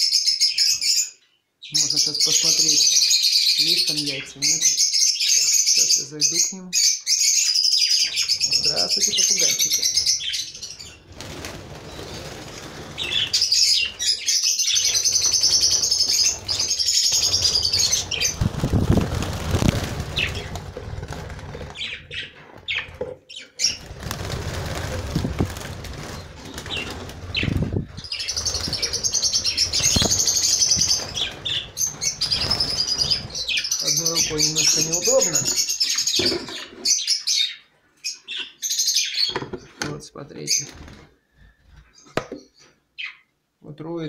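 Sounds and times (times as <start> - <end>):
budgerigars warbling chatter: 1.6 - 11.1, 13.0 - 24.0, 26.1 - 39.4
birds flapping wings: 9.6 - 23.0, 23.7 - 34.0.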